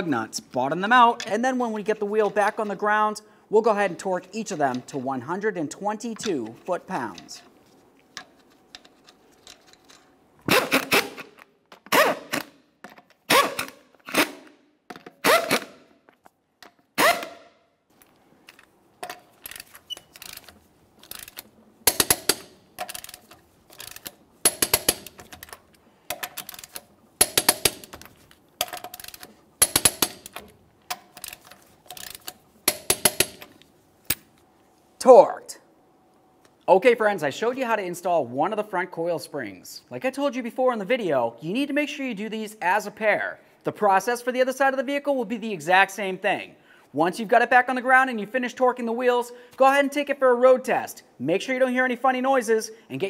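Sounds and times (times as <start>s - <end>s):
ratchet wrench clicking: 19.4s - 28.0s, 28.6s - 30.4s.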